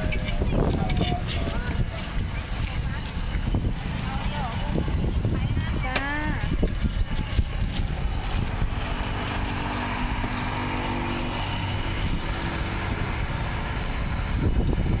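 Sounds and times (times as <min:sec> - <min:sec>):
motor engine droning: 0:07.0 - 0:15.0.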